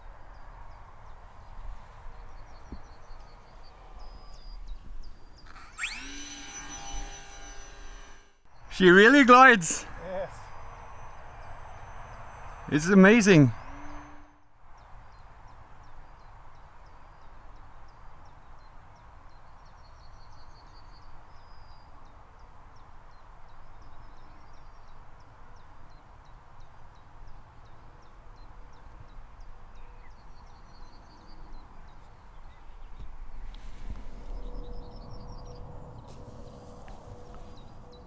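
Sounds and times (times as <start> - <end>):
birds chirping: 0.0 - 36.1, 37.1 - 38.0
bird trill: 4.0 - 14.4.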